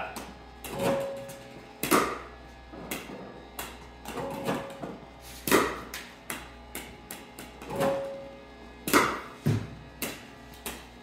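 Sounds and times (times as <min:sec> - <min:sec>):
balls bouncing on concrete: 0:00.0 - 0:08.2, 0:08.8 - 0:11.0
paddle hitting ball: 0:05.4 - 0:08.0, 0:08.9 - 0:10.8.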